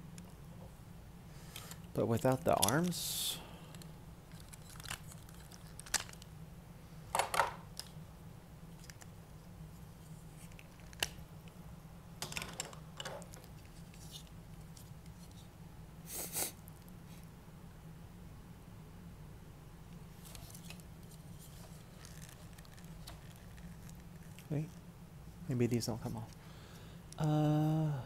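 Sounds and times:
low steady hum: 0.0s - 28.0s
toy parts clicking and scraping: 1.5s - 3.0s, 3.7s - 6.3s, 20.2s - 24.8s.

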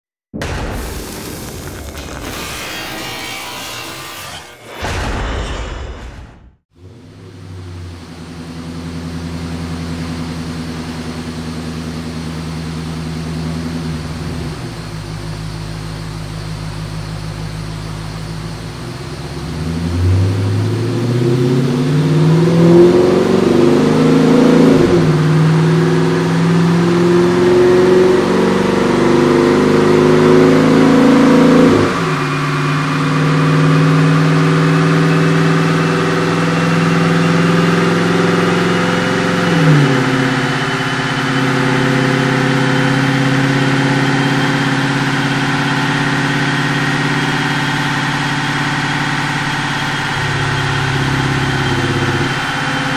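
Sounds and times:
thin climbing whine: 1.5s - 4.9s
car engine revving on dyno: 2.0s - 4.5s, 6.8s - 52.9s.

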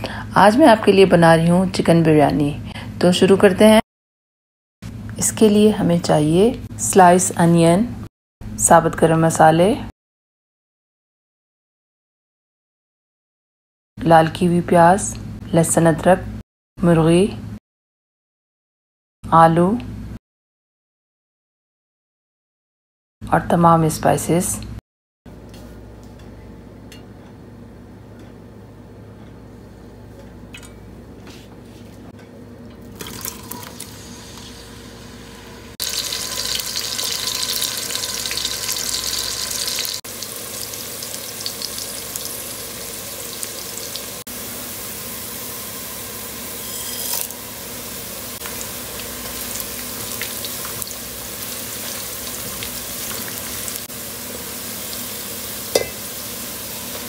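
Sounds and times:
cooking oil pouring into pot: 33.0s - 34.6s, 35.8s - 45.5s
onions sizzling in hot oil: 33.0s - 57.0s.

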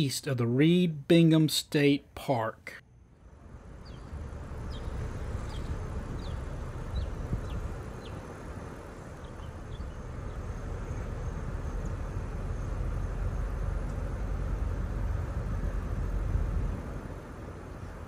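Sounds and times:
car rolling on paved lane: 3.3s - 18.0s.

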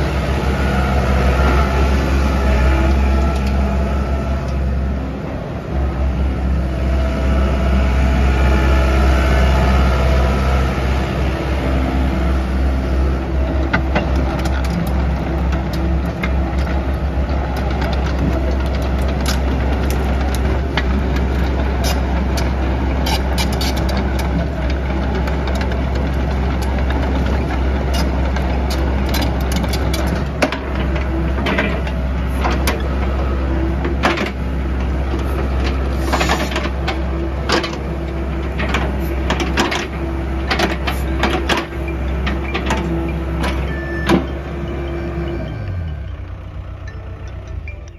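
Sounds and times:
excavator diesel engine running: 0.0s - 47.9s
metal clanks and knocks: 38.5s - 44.7s.

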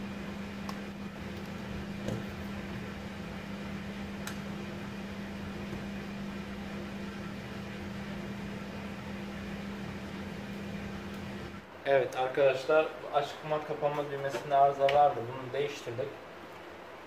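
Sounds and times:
machine hum with airy whir: 0.0s - 17.0s.

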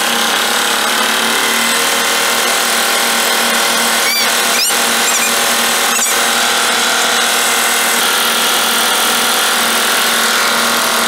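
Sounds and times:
short high chirp: 4.0s - 6.2s.

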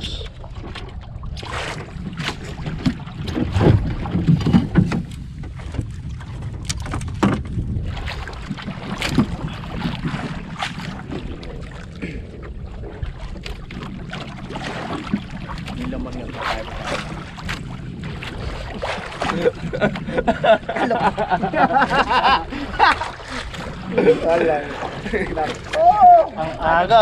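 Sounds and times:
wind and water rumble: 0.0s - 27.0s
fishing gear knocks and clicks: 6.5s - 7.6s.

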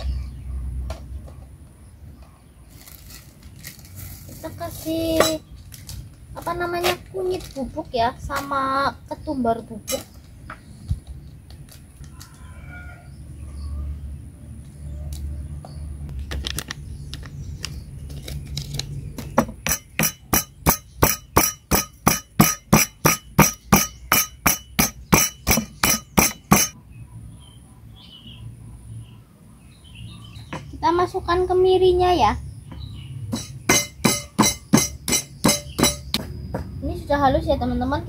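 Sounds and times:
stone pestle striking mortar: 19.4s - 26.8s, 33.3s - 36.4s.

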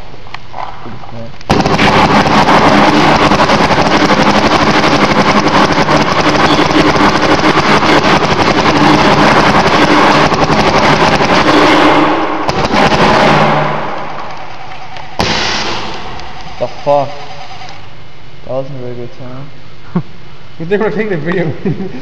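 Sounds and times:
steady hum: 0.0s - 22.0s
paintball marker rapid firing: 1.5s - 17.8s.

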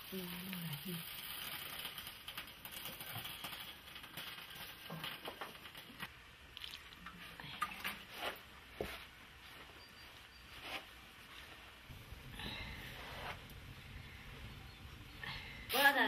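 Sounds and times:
faint rustling of wool sack: 8.0s - 11.9s.

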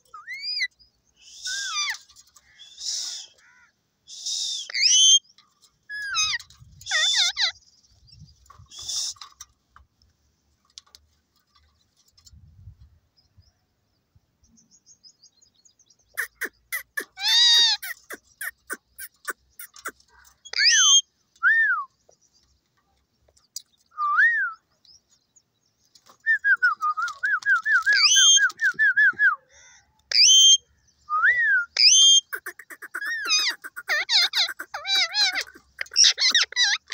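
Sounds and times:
parakeets calling: 4.7s - 5.2s, 5.9s - 7.6s, 16.1s - 21.0s, 31.8s - 36.9s.

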